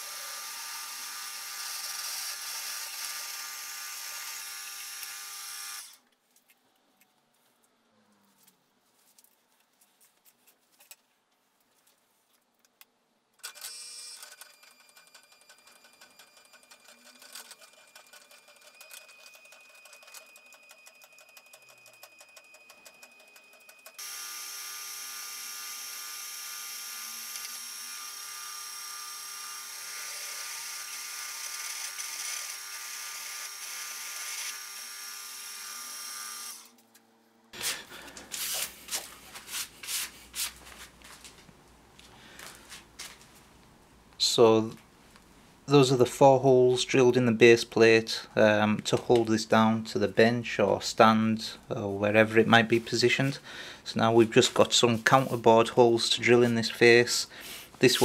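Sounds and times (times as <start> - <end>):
drill boring into metal: 0.0 - 6.0, 24.0 - 36.7.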